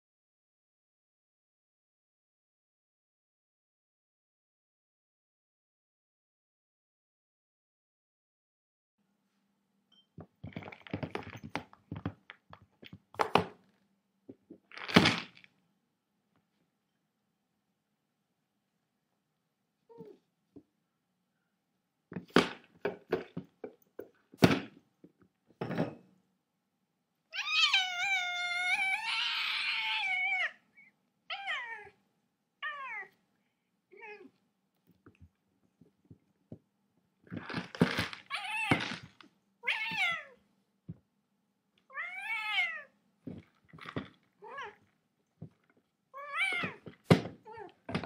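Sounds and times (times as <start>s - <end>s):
cat meowing: 27.3s - 30.6s, 31.3s - 32.0s, 32.6s - 33.2s, 39.6s - 40.4s, 41.9s - 43.0s, 44.4s - 44.9s, 46.2s - 47.8s.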